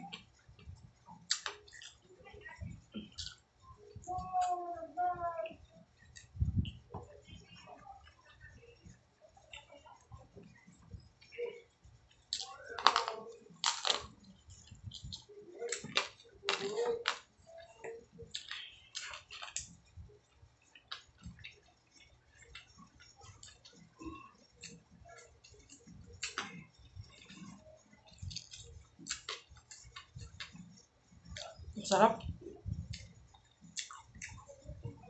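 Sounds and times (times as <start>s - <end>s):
person chewing food: 0.1s - 2.1s, 2.9s - 3.4s, 12.1s - 17.3s, 18.2s - 31.6s, 32.6s - 34.5s
wet mouth clicks and smacks: 1.3s - 2.0s, 33.7s - 34.4s.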